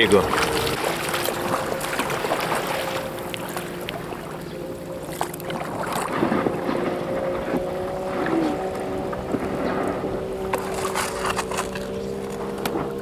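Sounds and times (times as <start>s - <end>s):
paddle strokes: 0.0s - 13.0s
water splashing and dripping: 0.0s - 13.0s
wind on microphone: 5.5s - 13.0s.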